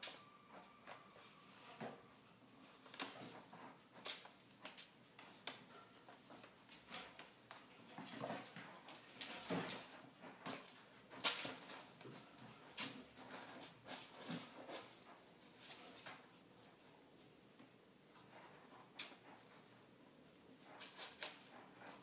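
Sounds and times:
kitten scratching in cat litter: 0:07.9 - 0:16.0, 0:20.6 - 0:22.0.

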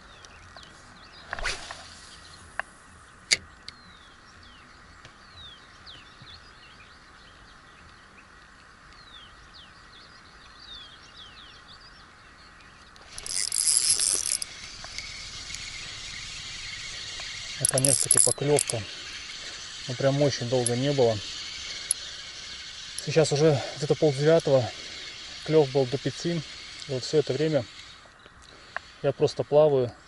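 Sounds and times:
small birds chirping: 0:00.0 - 0:30.0
steady background hiss: 0:00.0 - 0:30.0
fishing line whizzing off reel: 0:01.2 - 0:02.4, 0:13.0 - 0:28.1
spinning reel winding: 0:13.0 - 0:29.4.

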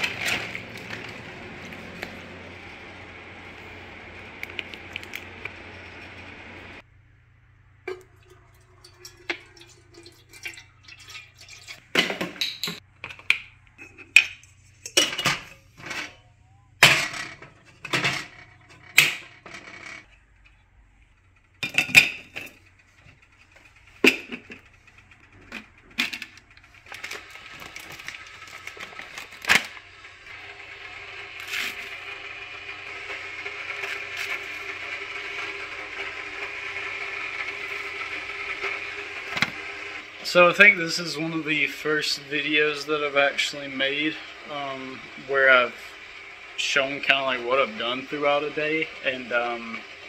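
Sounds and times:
kitchenware clinking and knocking: 0:07.9 - 0:16.2, 0:21.6 - 0:22.6
coffee scooped from foil bag: 0:31.4 - 0:32.1.

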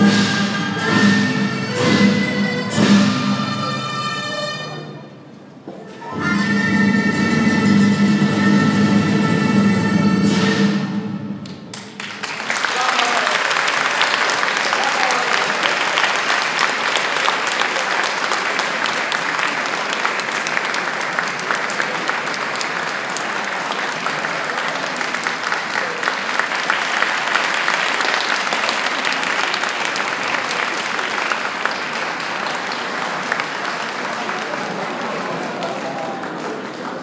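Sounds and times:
audience applauding: 0:11.4 - 0:37.0.

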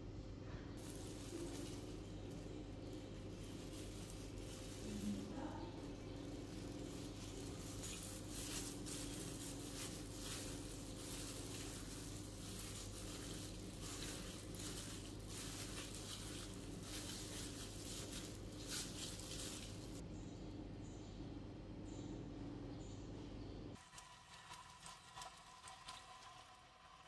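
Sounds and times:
plastic gloves rustling: 0:00.8 - 0:20.0.

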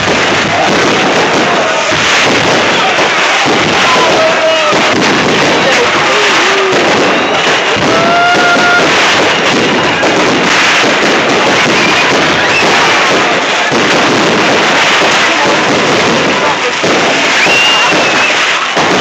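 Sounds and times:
fireworks bangs and crackling: 0:00.0 - 0:19.0.

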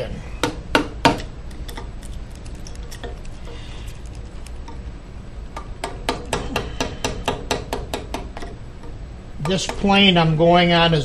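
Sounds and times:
sharp knock of chisel: 0:05.8 - 0:08.3.

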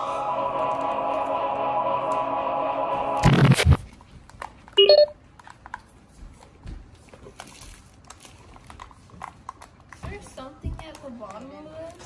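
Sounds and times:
loud noisy burst: 0:00.0 - 0:03.8
electronic toy chiming tone: 0:04.8 - 0:05.1.

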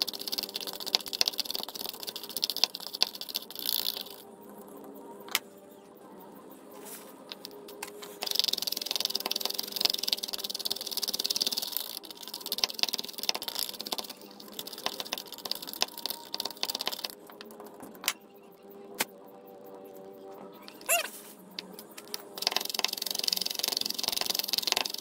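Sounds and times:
salt granules rattling in funnel: 0:22.4 - 0:25.0.

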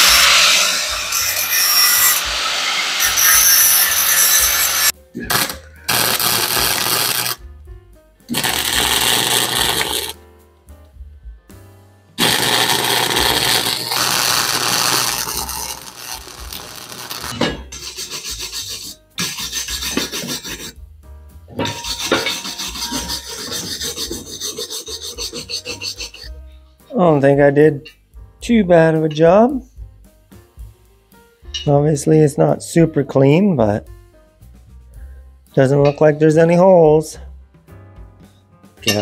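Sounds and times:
wire brush scrubbing metal: 0:00.0 - 0:07.3, 0:12.2 - 0:20.8, 0:21.6 - 0:26.3
welder arc noise: 0:00.0 - 0:07.4, 0:08.3 - 0:10.2, 0:12.2 - 0:18.8.

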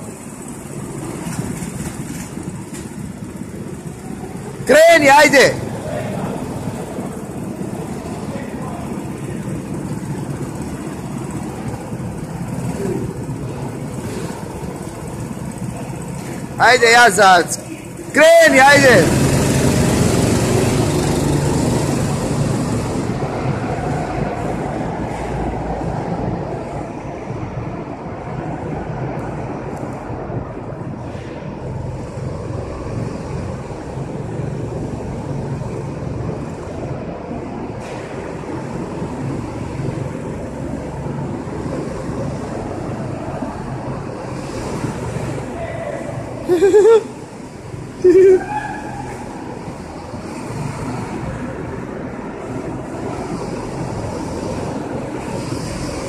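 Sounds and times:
go-kart engines idling: 0:00.0 - 0:56.0.

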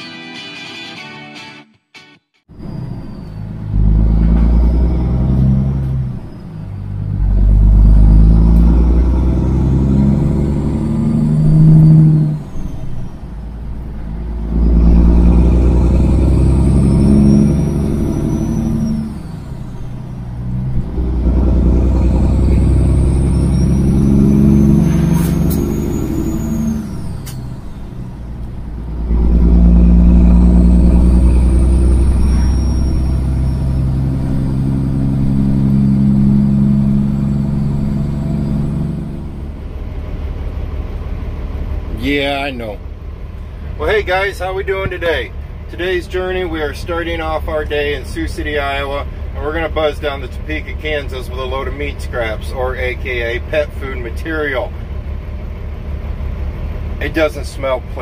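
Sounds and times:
truck diesel engine accelerating: 0:02.5 - 0:58.0
high whistle: 0:31.7 - 0:33.8.

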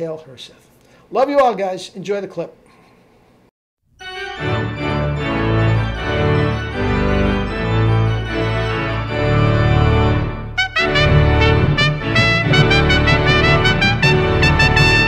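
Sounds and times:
organ chords: 0:04.0 - 0:15.0.

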